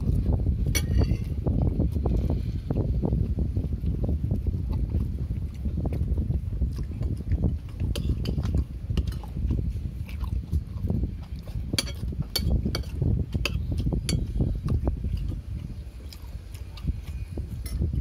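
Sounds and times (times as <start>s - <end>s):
low rumble: 0.0s - 18.0s
spoons clinking on plates: 11.8s - 14.3s.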